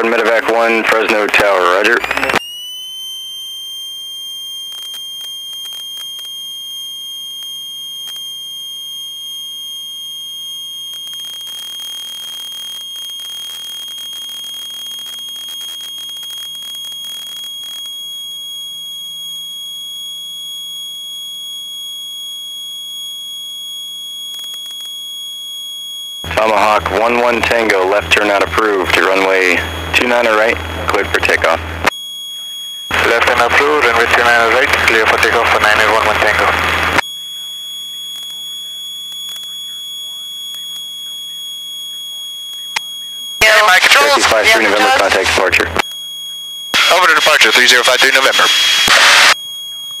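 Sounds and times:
high-pitched electronic tone: 0:41.9 - 0:50.0.

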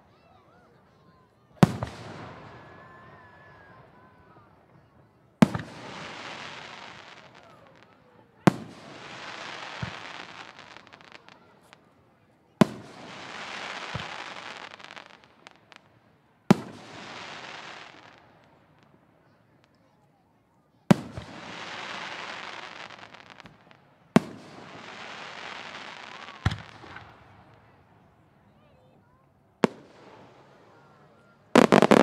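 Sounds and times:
firework crackling: 0:05.4 - 0:11.8, 0:12.6 - 0:19.0, 0:20.9 - 0:27.6, 0:29.6 - 0:30.8, 0:31.6 - 0:32.0
firework shells bursting: 0:31.6 - 0:32.0.

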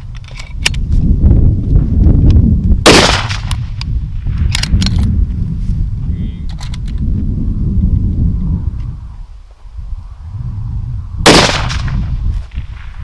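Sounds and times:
wind rumbling on microphone: 0:00.0 - 0:13.0
rifle shot with echo: 0:02.8 - 0:03.8, 0:11.2 - 0:13.0.

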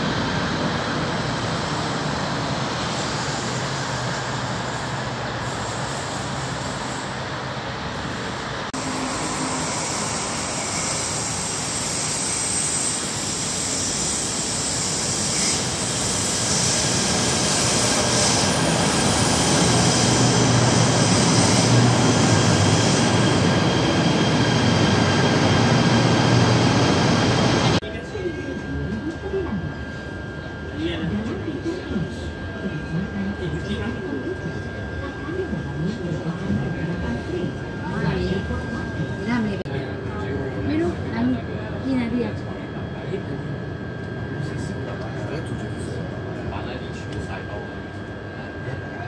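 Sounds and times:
electric train running: 0:00.0 - 0:30.1.

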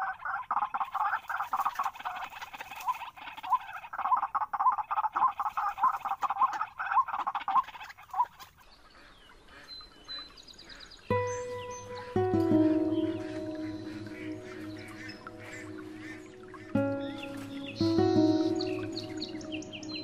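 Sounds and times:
waterhen harsh croaking calls: 0:00.0 - 0:20.0.

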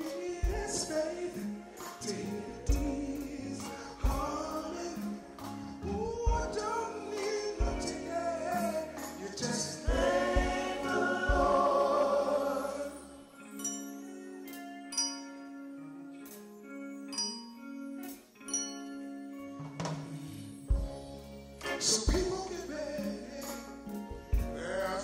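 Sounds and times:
live band with singing: 0:00.0 - 0:14.8, 0:19.8 - 0:25.0
steady drum beat: 0:02.7 - 0:03.2, 0:04.0 - 0:05.1, 0:06.1 - 0:06.8, 0:07.5 - 0:12.2, 0:21.6 - 0:22.6
held ringing notes: 0:06.0 - 0:19.6.

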